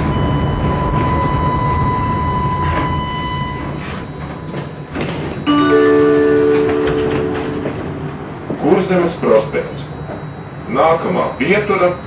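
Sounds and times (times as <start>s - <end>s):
tram rumbling: 0.0s - 12.0s
tram whine: 0.0s - 12.0s
electronic chime held tones: 5.4s - 12.0s.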